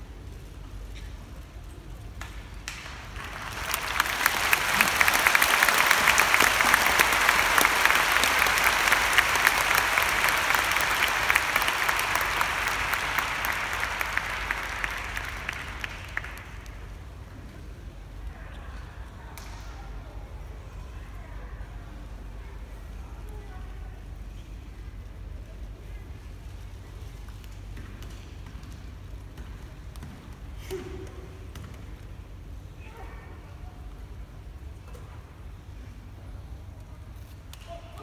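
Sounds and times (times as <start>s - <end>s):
audience clapping: 2.1s - 17.2s.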